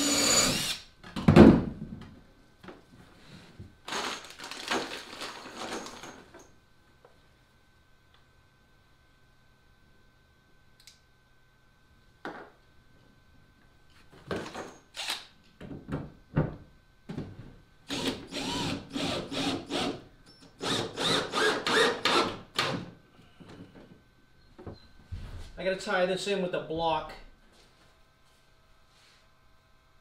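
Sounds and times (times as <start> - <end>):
cordless drill driving screws: 0.0 - 0.9, 15.0 - 15.3, 17.9 - 20.0, 20.6 - 22.8.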